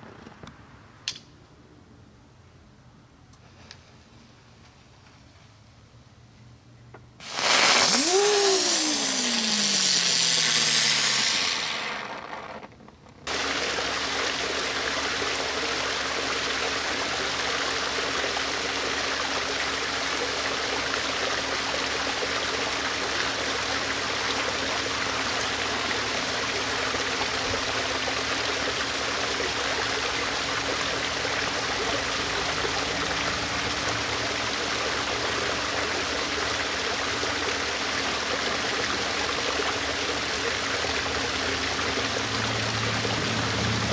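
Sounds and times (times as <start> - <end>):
waterfall splashing: 7.2 - 12.4, 13.3 - 43.9
hiss with falling whine: 7.2 - 12.7.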